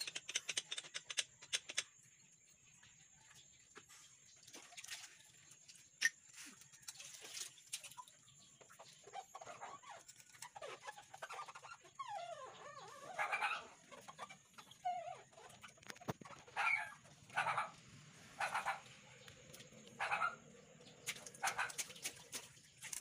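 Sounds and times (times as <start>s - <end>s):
chickens clucking: 7.8s - 23.0s.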